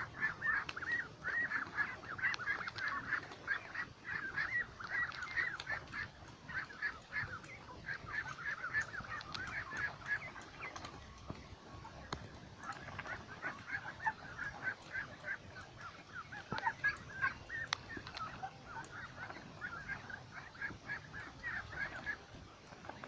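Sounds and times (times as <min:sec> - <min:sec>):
ducks quacking: 0:00.0 - 0:23.0.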